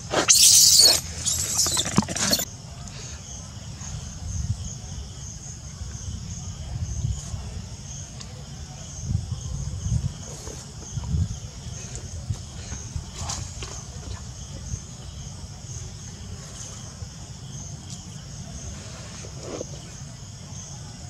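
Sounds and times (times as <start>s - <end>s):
high insect buzz: 0.0s - 2.5s
monkey screaming: 0.1s - 2.4s.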